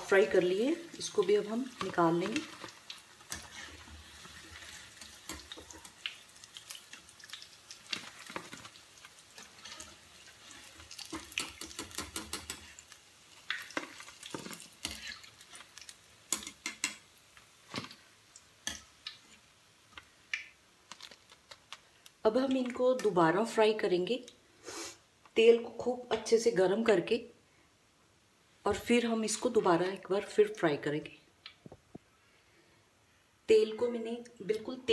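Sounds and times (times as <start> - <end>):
hot oil sizzling and popping: 0.0 - 23.6.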